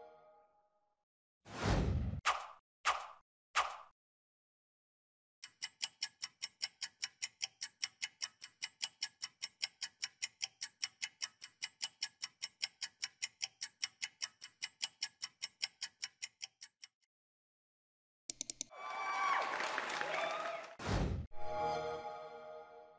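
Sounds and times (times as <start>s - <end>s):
fast clock-like ticking: 5.4s - 17.1s
quick clicks: 18.3s - 18.7s.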